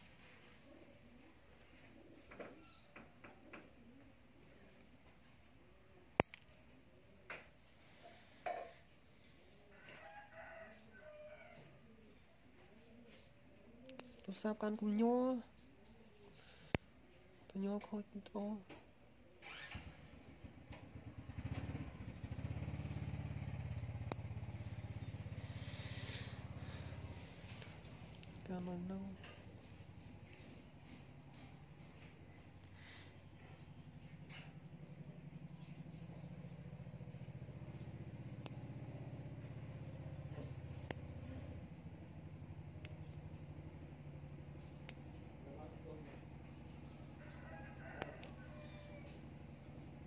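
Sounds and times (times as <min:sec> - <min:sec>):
nail clipper clicks: 0:06.2 - 0:06.5, 0:24.0 - 0:24.2
engine running with even pulse: 0:19.6 - 0:28.5, 0:29.1 - 0:50.0
steady low hum: 0:21.8 - 0:50.0.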